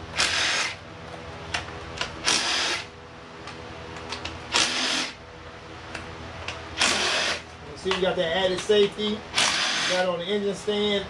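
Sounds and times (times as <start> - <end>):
steady low hum: 0.0 - 11.0
cordless drill spinning: 0.2 - 0.8, 2.2 - 2.9, 4.5 - 5.2, 6.8 - 7.4, 9.4 - 10.0.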